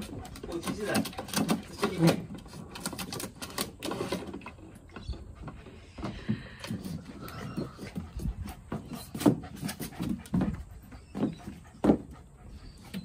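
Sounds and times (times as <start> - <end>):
puppy pawing plastic water fountain: 0.0 - 4.7.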